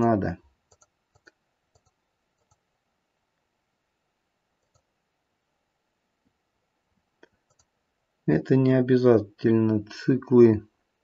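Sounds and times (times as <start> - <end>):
computer mouse clicks: 0.7 - 2.6, 4.6 - 4.9, 7.2 - 7.8.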